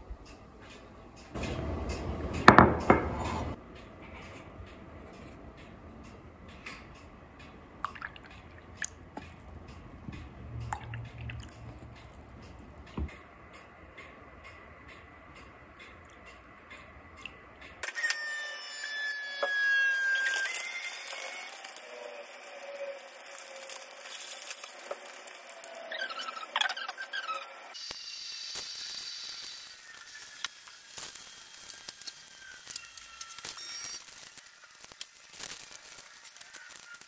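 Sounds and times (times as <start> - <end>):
falling whine: 19.4 - 37.0
plastic crinkling and rustling: 20.3 - 26.4, 31.8 - 37.0.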